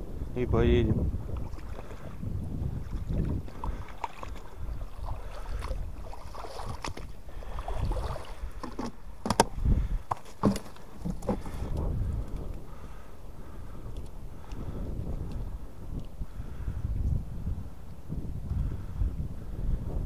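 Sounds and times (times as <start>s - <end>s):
water sloshing and splashing: 1.2s - 16.2s.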